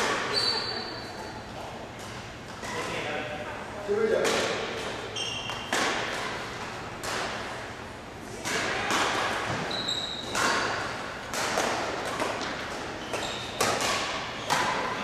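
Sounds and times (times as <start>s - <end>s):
shoe squeak: 0.3s - 1.4s, 5.1s - 5.7s, 9.6s - 10.4s, 12.9s - 13.7s
rackets smacking shuttlecock: 4.2s - 7.6s, 8.3s - 15.0s.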